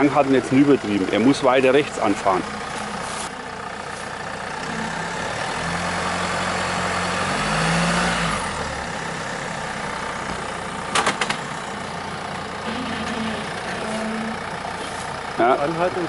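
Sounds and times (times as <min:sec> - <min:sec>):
engine revving under load: 0:03.9 - 0:11.6, 0:12.6 - 0:16.0.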